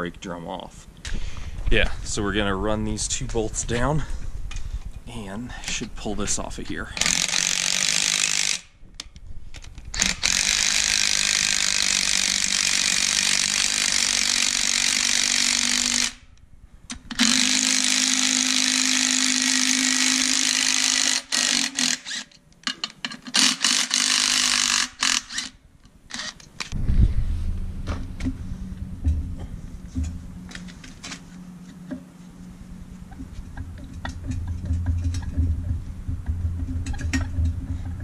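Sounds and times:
cordless power driver running: 7.0 - 8.6, 9.9 - 16.2, 17.1 - 22.2, 23.4 - 26.4
low thump: 26.8 - 31.0.

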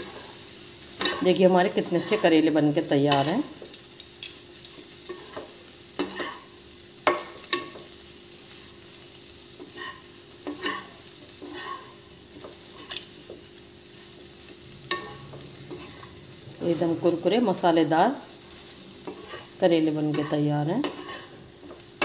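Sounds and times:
soft frying sizzle: 0.0 - 22.0
metal spatula scraping pan: 5.0 - 6.5, 9.6 - 13.2, 14.4 - 22.0.

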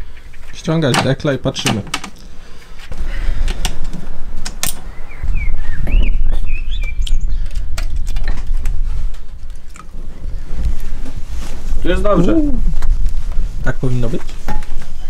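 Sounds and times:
bird chirps: 0.0 - 0.9, 4.8 - 8.1
low rumble: 2.4 - 14.6.

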